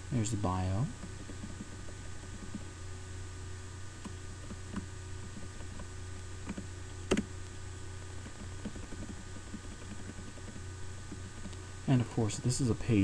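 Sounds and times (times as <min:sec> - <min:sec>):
steady low hum: 0:00.0 - 0:13.0
keyboard key presses: 0:04.0 - 0:07.3, 0:08.2 - 0:11.5.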